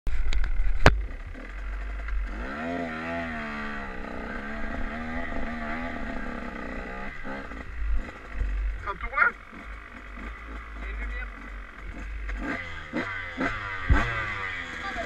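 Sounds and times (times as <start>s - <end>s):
dirt bike engine revving: 0.4s - 15.0s.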